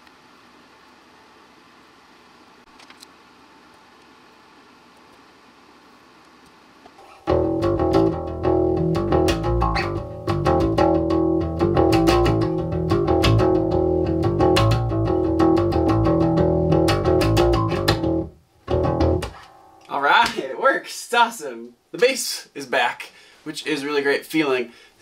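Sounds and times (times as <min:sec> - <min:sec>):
electric bass riff: 0:07.0 - 0:20.4.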